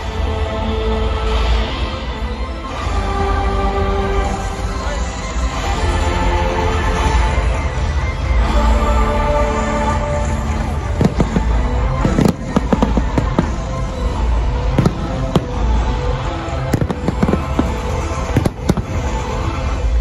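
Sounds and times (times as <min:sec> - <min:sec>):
music playing: 0:00.0 - 0:20.0
fireworks bursting: 0:10.6 - 0:19.9.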